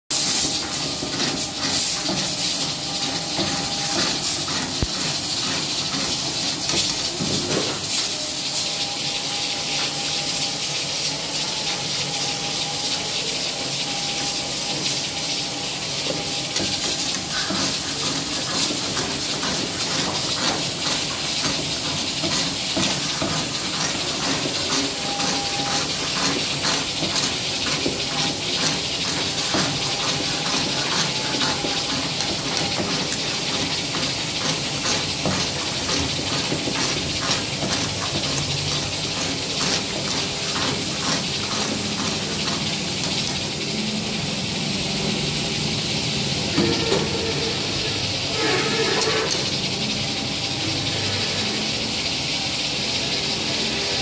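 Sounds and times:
chicken sizzling in a pan: 0:00.1 - 0:54.0
metal ladle scraping a pan: 0:46.6 - 0:49.5.

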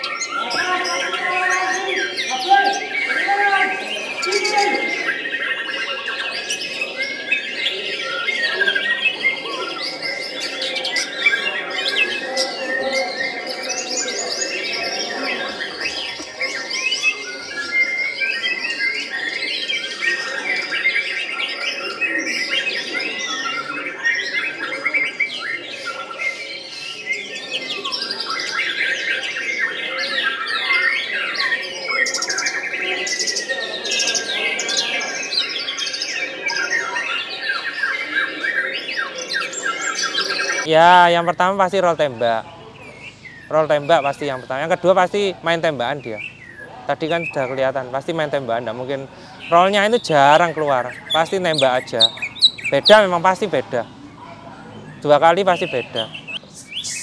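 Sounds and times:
songbird whistling and trilling: 0:49.4 - 0:53.3, 0:54.8 - 0:57.0.

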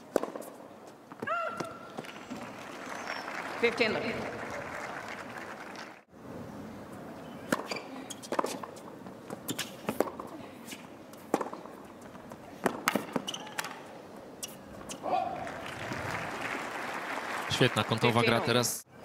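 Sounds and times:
tennis ball bounces: 0:00.0 - 0:02.4, 0:07.4 - 0:10.3, 0:11.1 - 0:13.8
low crowd background: 0:01.8 - 0:09.4.

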